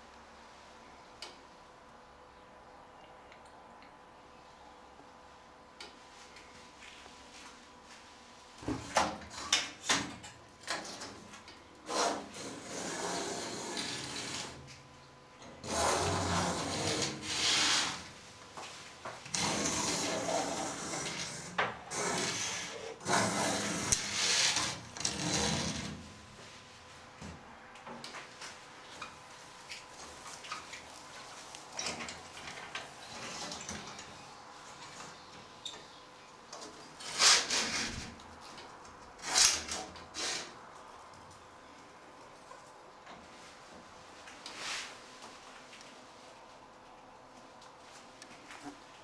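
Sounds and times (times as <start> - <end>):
fabric rustling and scraping: 43.3 - 46.3.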